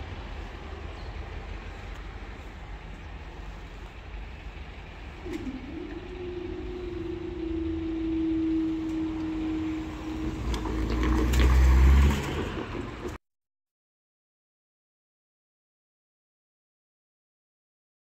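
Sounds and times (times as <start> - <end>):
low rumble: 0.0 - 13.2
barrier mechanism humming: 3.4 - 13.2.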